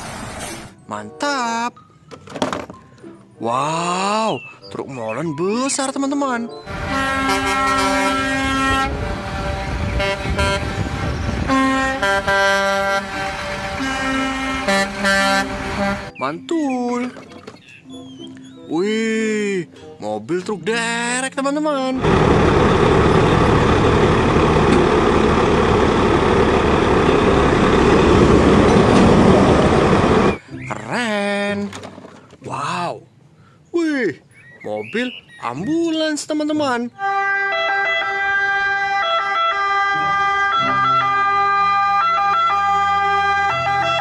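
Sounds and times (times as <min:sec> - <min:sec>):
low engine rumble: 0:06.7 - 0:16.1, 0:22.0 - 0:30.4
truck horn blasts: 0:06.7 - 0:16.2, 0:37.0 - 0:44.0.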